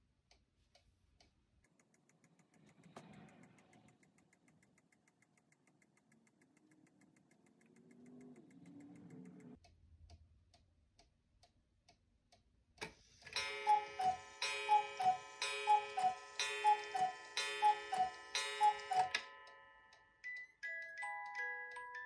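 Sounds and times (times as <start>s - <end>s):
clock ticking: 0.0s - 10.2s, 11.0s - 22.0s
clock strike click: 13.2s - 20.0s
cuckoo clock calling: 13.3s - 22.0s.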